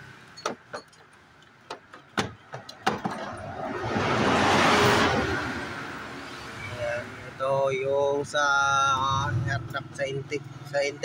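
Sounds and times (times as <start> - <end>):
rushing noise: 3.1 - 7.4.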